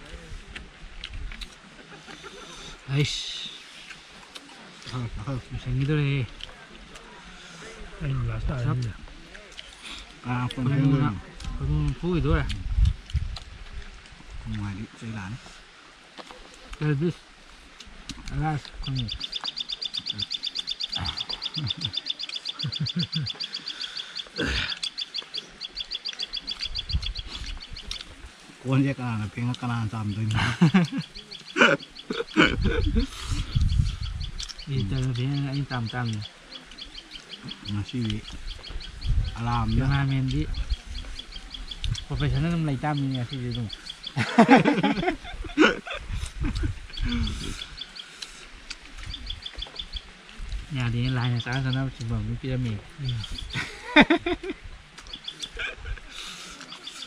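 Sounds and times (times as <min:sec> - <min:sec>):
low voices: 0:00.0 - 0:36.5, 0:37.3 - 0:49.2, 0:50.2 - 0:54.7, 0:55.4 - 0:57.0
small animal chirping rapidly: 0:18.3 - 0:28.1, 0:55.0 - 0:57.0.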